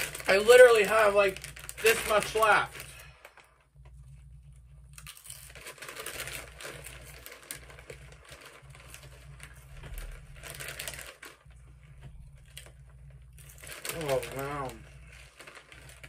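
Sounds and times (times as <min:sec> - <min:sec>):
foil bag crinkling: 0:00.0 - 0:16.0
chips crunching while chewed: 0:04.9 - 0:11.4, 0:12.3 - 0:16.0.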